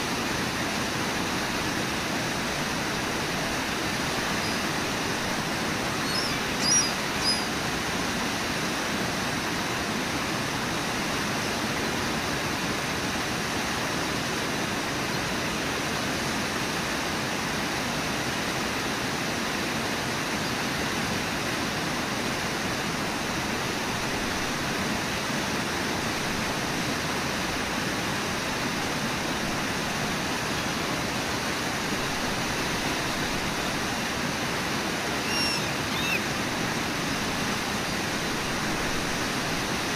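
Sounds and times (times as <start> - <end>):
white water roaring over falls: 0.0 - 39.9
short high chirps: 6.0 - 7.5, 35.2 - 36.2.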